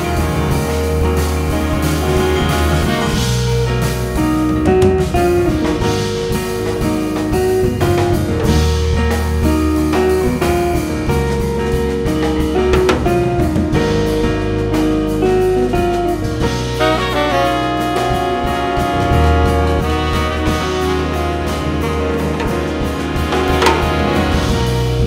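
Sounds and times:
saxophones and trumpet: 0.0s - 3.7s, 16.6s - 25.0s
bass: 0.0s - 25.0s
drum kit: 0.0s - 25.0s
guitar: 0.0s - 25.0s
piano: 0.0s - 25.0s.

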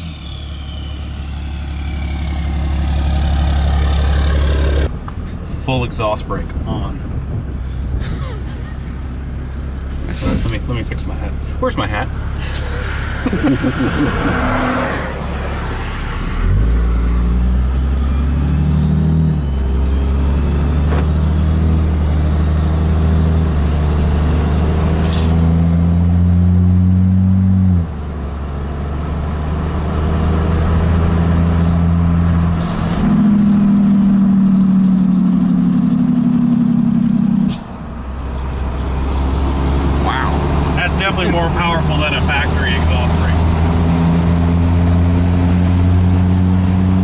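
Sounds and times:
diesel engine with exhaust brake: 15.7s - 41.8s.

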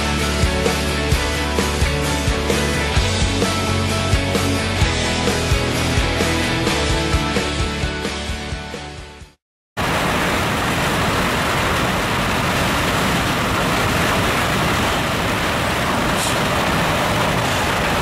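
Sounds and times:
car road and wind noise: 9.8s - 18.0s.

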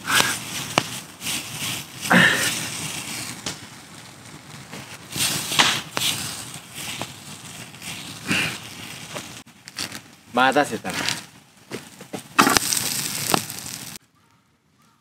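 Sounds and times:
boots crunching through dry leaves: 0.0s - 3.6s, 10.8s - 14.0s
campfire crackling and popping: 0.0s - 14.8s.

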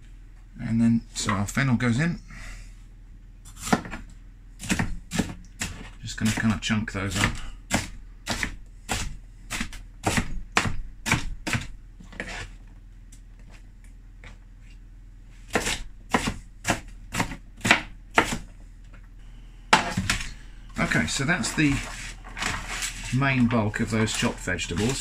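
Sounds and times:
knife chopping on plastic board: 3.6s - 4.0s, 4.6s - 12.4s, 15.5s - 18.5s, 19.7s - 20.3s.

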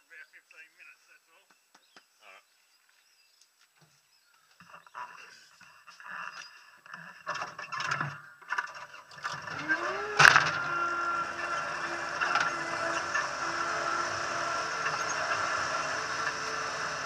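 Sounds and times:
knocks and rattles: 6.8s - 17.0s
loud clunk: 7.3s - 16.5s
loader engine starting and running: 7.4s - 17.0s.

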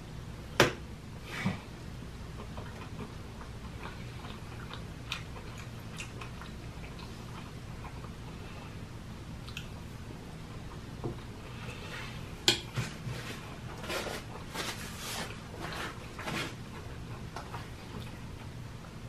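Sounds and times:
steady low hum: 0.0s - 19.0s
chewing and mouth noises: 2.3s - 8.8s, 9.4s - 9.8s.

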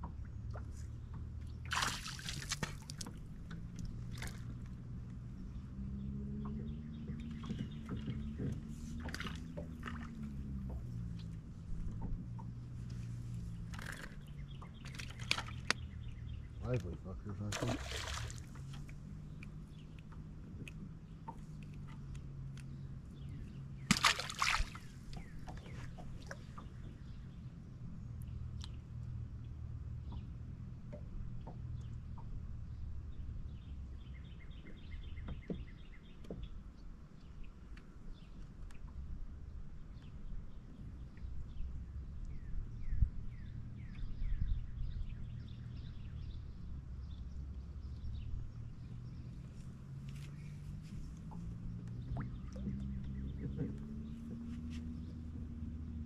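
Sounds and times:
water sloshing and splashing: 0.0s - 27.4s, 48.5s - 55.7s
water splash: 1.6s - 3.2s, 17.5s - 19.0s, 23.8s - 25.6s.

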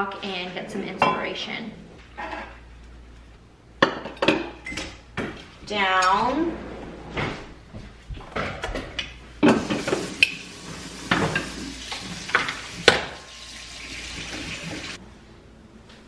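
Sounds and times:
water running from a tap: 9.6s - 15.0s.

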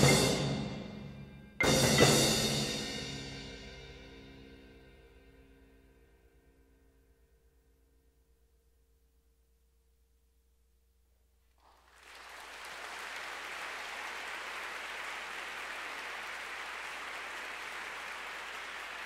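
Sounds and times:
audience applause: 11.6s - 19.0s.

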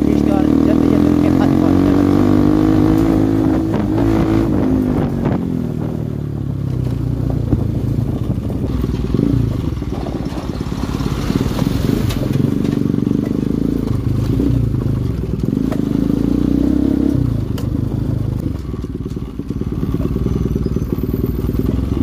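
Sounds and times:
motorcycle engine running: 0.0s - 22.0s
rattling on rough gravel: 6.5s - 16.0s, 17.4s - 22.0s.

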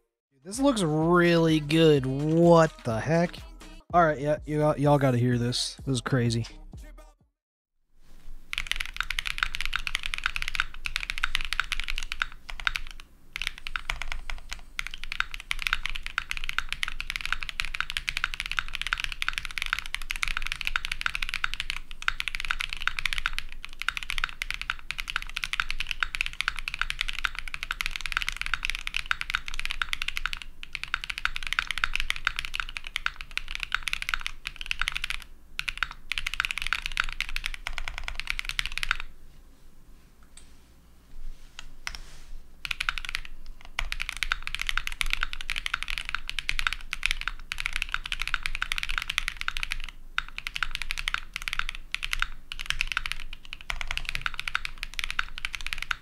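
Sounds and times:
mechanical keyboard typing: 8.5s - 39.1s, 42.6s - 56.0s.

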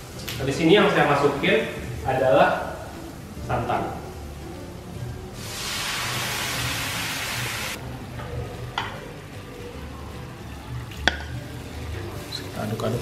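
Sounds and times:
frying pan sizzling: 0.0s - 7.8s.

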